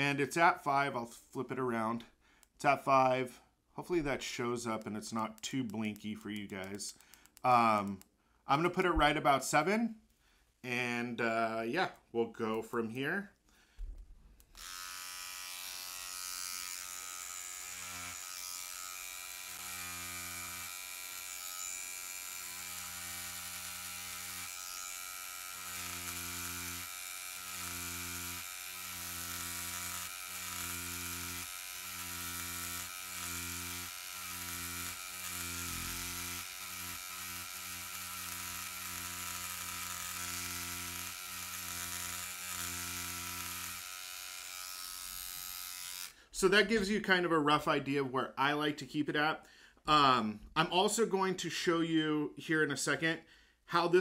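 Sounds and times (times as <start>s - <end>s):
tattoo machine buzzing: 14.4s - 46.2s.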